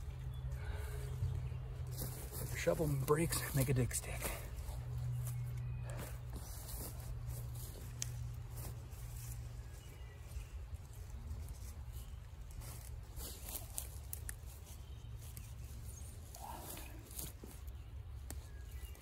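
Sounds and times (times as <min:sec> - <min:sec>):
steady low rumble: 0:00.0 - 0:18.1
leaves rustling: 0:06.4 - 0:19.0.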